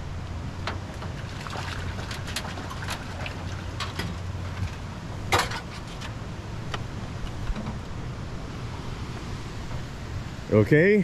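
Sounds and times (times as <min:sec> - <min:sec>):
water noise: 0:00.0 - 0:11.0.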